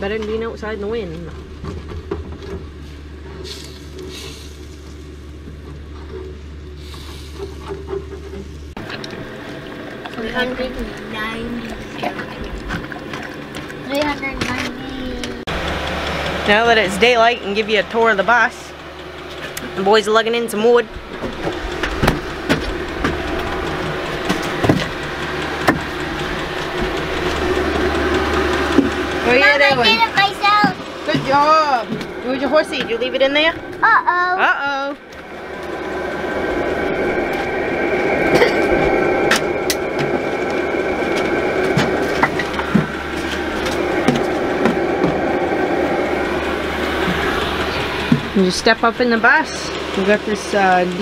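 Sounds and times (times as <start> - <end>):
steady low hum: 0.0 - 51.0
firewood logs knocking: 21.0 - 32.2.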